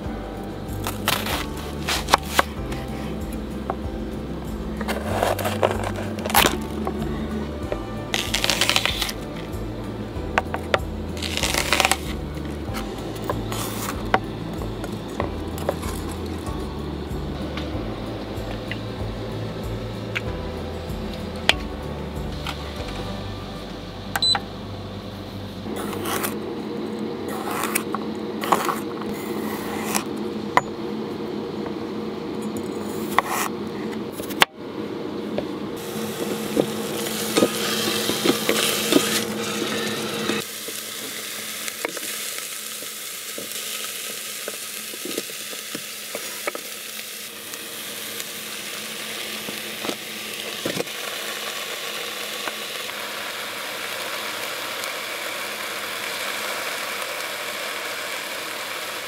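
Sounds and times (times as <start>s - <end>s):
food sizzling in a pot: 0.0s - 23.6s, 35.8s - 59.0s
knife chopping on wooden board: 33.1s - 33.5s.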